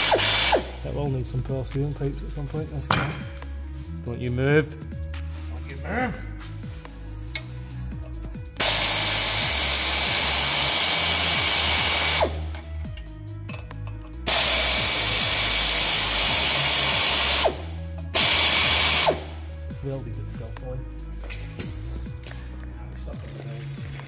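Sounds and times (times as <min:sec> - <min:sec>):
loud air hiss: 0:00.0 - 0:00.8, 0:08.6 - 0:12.4, 0:14.3 - 0:19.4
pneumatic air ratchet running: 0:00.0 - 0:00.8, 0:08.6 - 0:12.6, 0:14.3 - 0:19.4.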